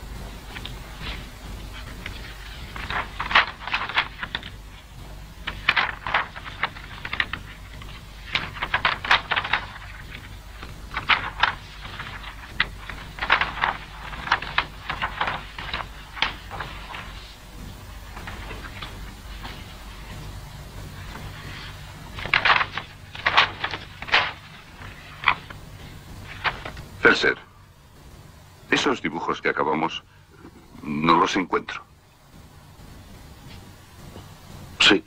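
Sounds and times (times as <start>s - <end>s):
paper sheets rustling: 0.0s - 30.0s.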